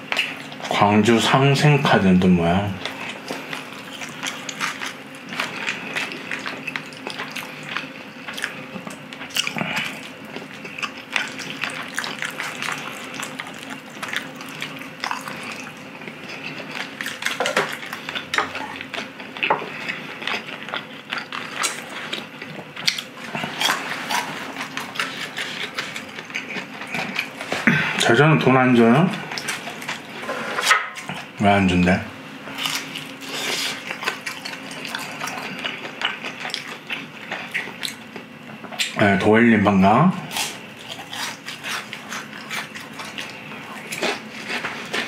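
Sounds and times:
faint steady hum: 0.0 - 45.0
wet chewing and mouth smacks: 2.8 - 27.6, 32.6 - 39.0.

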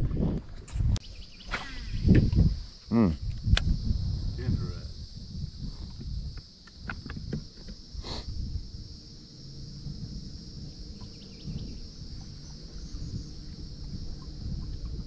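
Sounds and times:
insects droning: 0.0 - 15.0
low rumble: 8.3 - 15.0.

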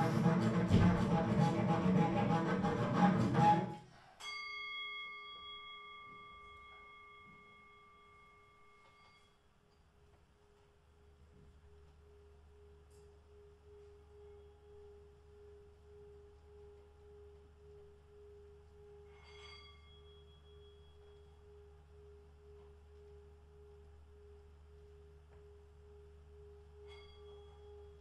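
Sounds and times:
low hum: 0.0 - 3.8, 10.8 - 28.0
bell-like ding: 4.2 - 9.3, 19.1 - 21.3, 26.8 - 28.0
faint steady pure tone: 4.3 - 28.0.

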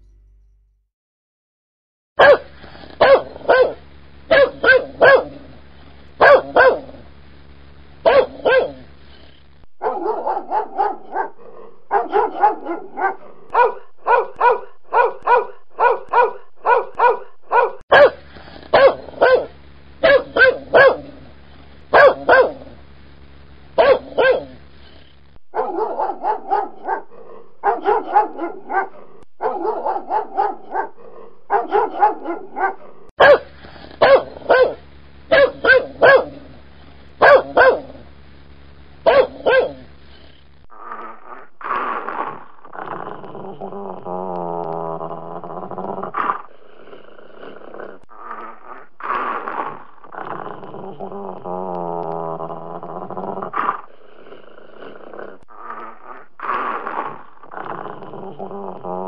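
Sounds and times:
low steady hum: 0.0 - 0.9, 2.2 - 59.0
dog barking: 2.2 - 5.4, 6.2 - 7.0, 8.0 - 8.8, 9.8 - 21.2, 21.9 - 22.7, 23.8 - 24.6, 25.5 - 36.5, 37.2 - 38.0, 39.1 - 39.9.

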